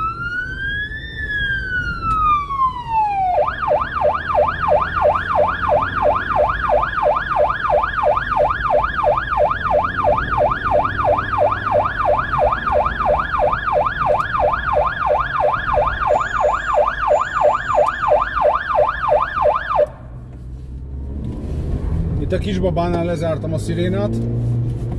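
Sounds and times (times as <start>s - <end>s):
electronic yelp siren: 0.0s - 19.9s
engine and road noise: 0.0s - 24.9s.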